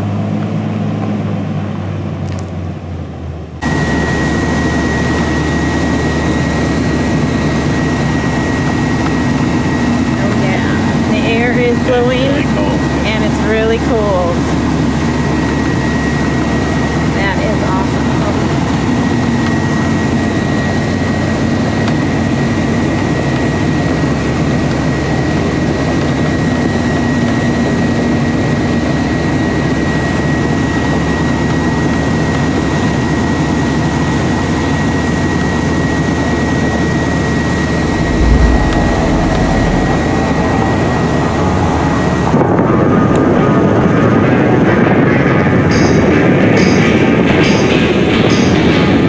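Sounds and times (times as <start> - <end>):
road noise: 37.7 - 44.0
low bump: 37.8 - 43.5.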